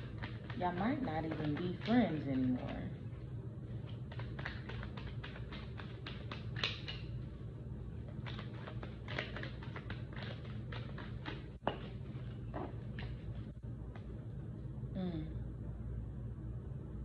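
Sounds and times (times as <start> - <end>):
cards being shuffled: 0.0 - 2.7, 3.8 - 7.1, 8.1 - 12.0.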